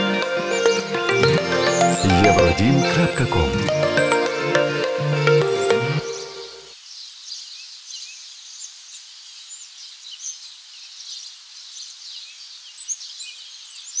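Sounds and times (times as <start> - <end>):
birds chirping and trilling: 3.8 - 14.0.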